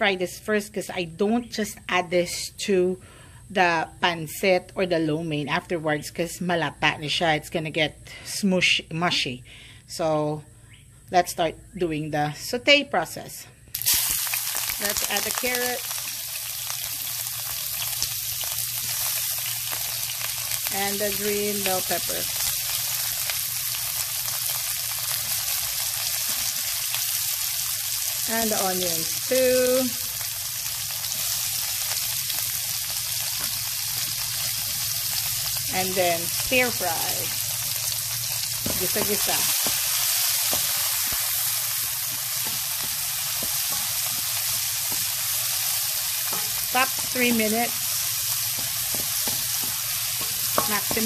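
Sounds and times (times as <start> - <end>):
vegetables sizzling in a wok: 12.4 - 51.0.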